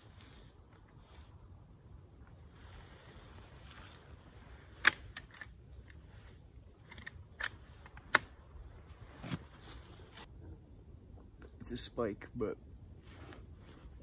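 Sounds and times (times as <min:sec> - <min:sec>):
clothing and gear rustling: 0:02.2 - 0:10.3, 0:13.0 - 0:14.0
rifle metallic clicks and clacks: 0:06.9 - 0:08.4.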